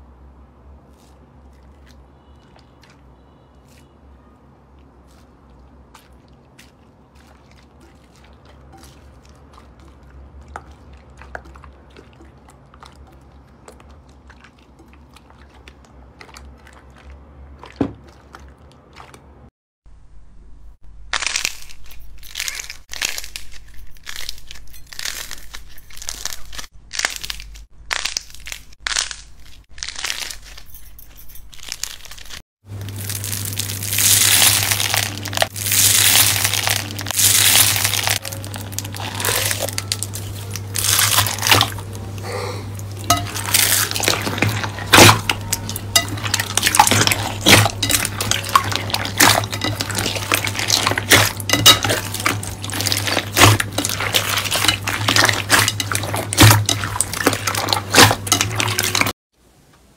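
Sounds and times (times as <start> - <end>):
steady low hum: 32.7 - 59.1
slime squishing and popping: 42.9 - 59.1.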